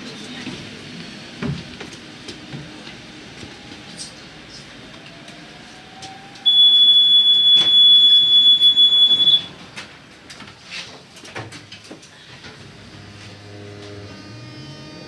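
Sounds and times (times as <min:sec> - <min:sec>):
high-pitched warning tone: 0:06.4 - 0:09.5.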